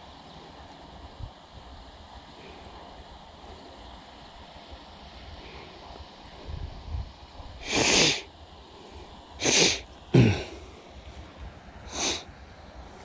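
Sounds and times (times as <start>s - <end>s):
person breathy bursts of breath: 7.6s - 11.1s, 11.8s - 12.3s.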